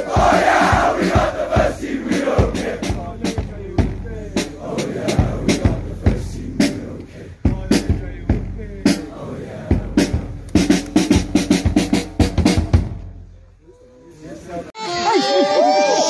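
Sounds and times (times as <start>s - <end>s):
crowd rhythmic chanting: 0.0s - 3.4s, 4.4s - 12.2s.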